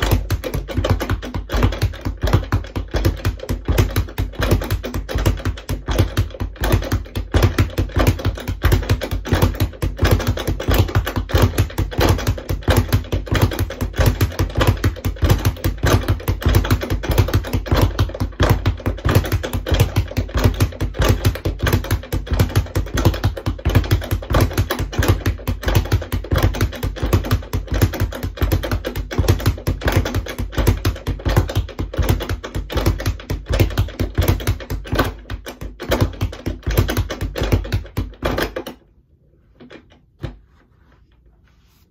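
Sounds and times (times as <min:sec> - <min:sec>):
speed bag being punched: 0:00.0 - 0:38.8.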